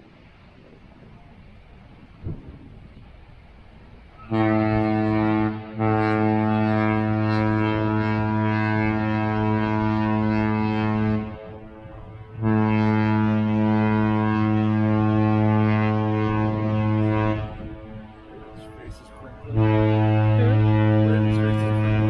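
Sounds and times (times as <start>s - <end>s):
ship horn blasts: 4.0s - 22.0s.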